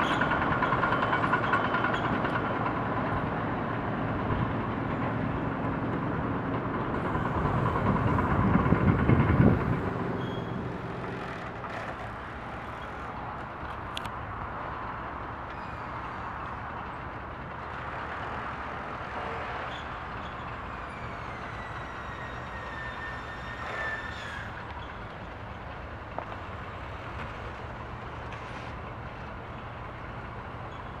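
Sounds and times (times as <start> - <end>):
outdoor background noise: 0.0 - 31.0
low engine hum: 2.1 - 22.8.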